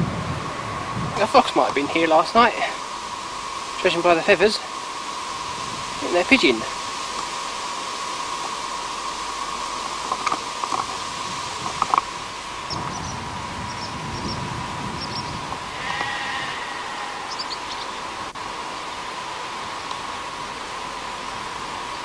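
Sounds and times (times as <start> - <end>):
tape hiss and high hum: 0.0 - 22.0
small high chirps: 15.0 - 18.0.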